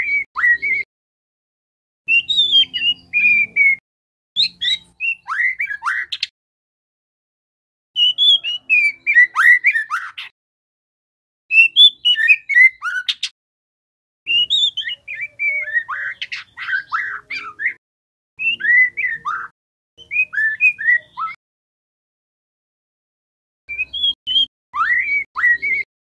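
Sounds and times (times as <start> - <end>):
bird singing whistled notes: 0.0 - 0.9, 2.1 - 3.8, 4.4 - 6.3, 8.0 - 10.3, 11.5 - 13.3, 14.3 - 17.8, 18.4 - 21.4, 23.7 - 25.9.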